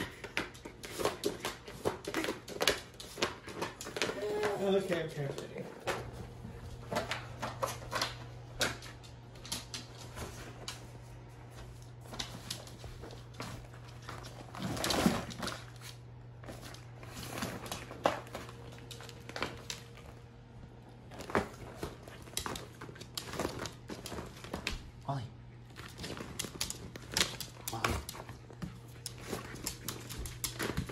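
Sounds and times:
dog pawing and chewing plastic: 0:00.0 - 0:10.8, 0:11.7 - 0:25.0, 0:25.6 - 0:30.9
plastic mat crinkling: 0:09.8 - 0:25.0.

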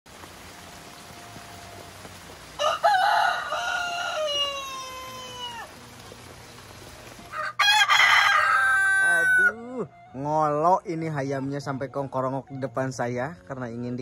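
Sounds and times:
rooster crowing: 0:02.6 - 0:05.8, 0:07.3 - 0:09.6.

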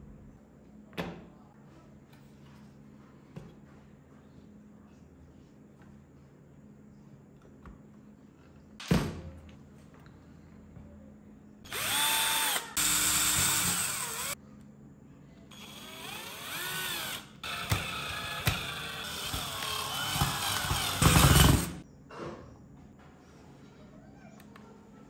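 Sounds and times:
cordless drill motor whine: 0:11.7 - 0:14.4, 0:15.5 - 0:21.8.

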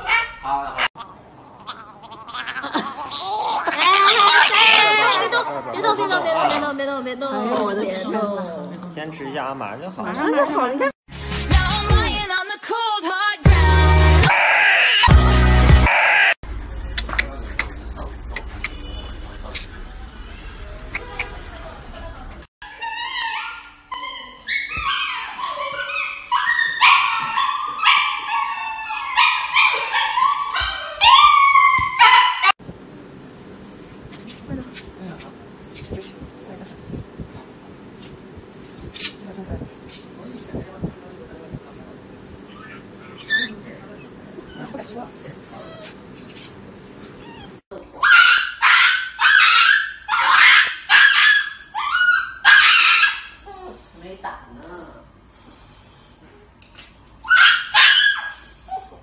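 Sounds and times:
dog yelping and howling: 0:03.6 - 0:05.5, 0:14.2 - 0:15.1, 0:22.6 - 0:32.6, 0:47.2 - 0:53.4, 0:57.2 - 0:59.0.

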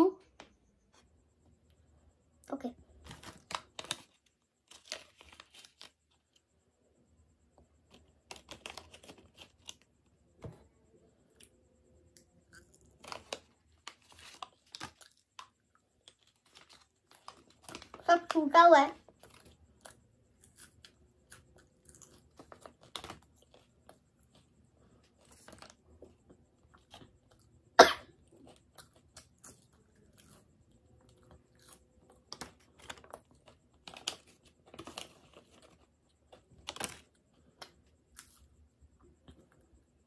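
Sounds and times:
foil packet crackling: 0:03.0 - 0:06.3, 0:07.9 - 0:09.9, 0:12.9 - 0:19.8, 0:22.0 - 0:24.4, 0:25.1 - 0:25.8, 0:32.2 - 0:37.3
chewing crunchy chips: 0:12.1 - 0:18.1, 0:19.0 - 0:24.5, 0:28.2 - 0:38.4.

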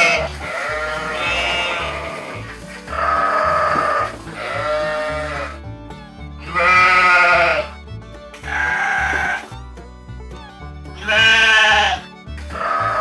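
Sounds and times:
sheep bleating: 0:00.0 - 0:05.6, 0:06.4 - 0:07.8, 0:08.4 - 0:09.5, 0:11.0 - 0:13.0
background music: 0:00.0 - 0:13.0.

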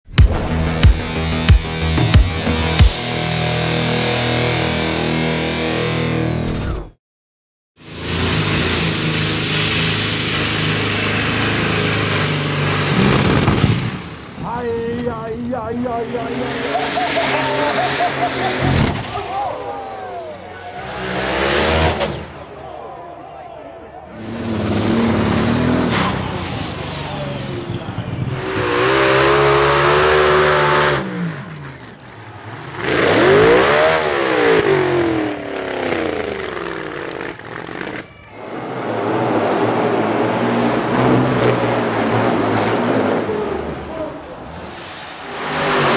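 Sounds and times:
tractor engine running hard: 0:07.8 - 0:21.9, 0:24.2 - 0:38.2.

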